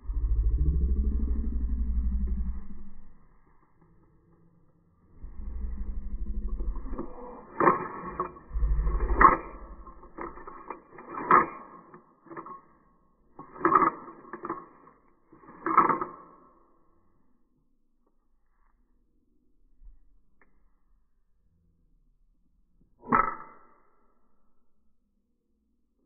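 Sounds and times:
low rumbling noise: 0:00.0 - 0:11.0.

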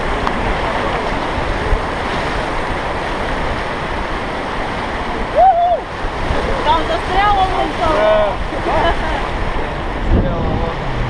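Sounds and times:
rushing white water: 0:00.0 - 0:11.0
wind buffeting the microphone: 0:00.0 - 0:11.0.

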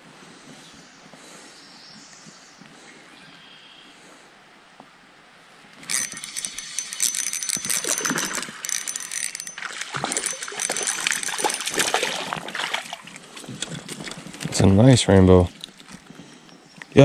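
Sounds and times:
fish thrashing and splashing: 0:05.8 - 0:14.6.

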